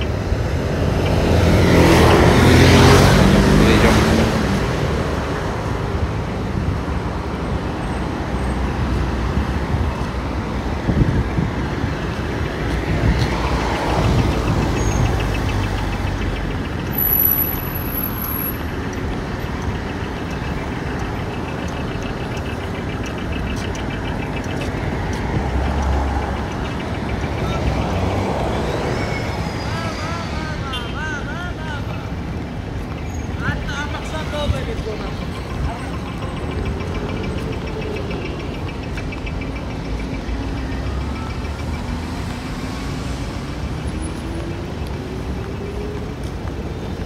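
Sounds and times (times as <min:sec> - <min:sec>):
cars and scooters passing: 0:00.0 - 0:47.0.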